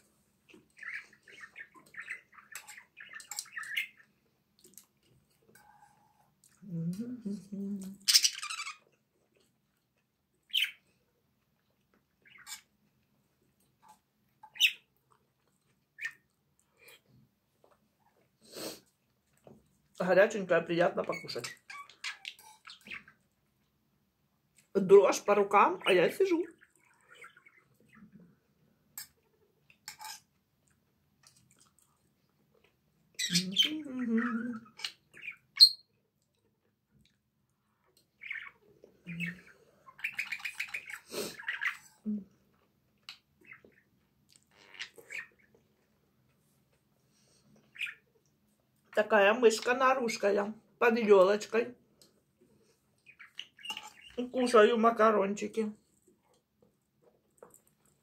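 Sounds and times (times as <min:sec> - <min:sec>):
fork scraping in frying pan: 0:29.8 - 0:30.3.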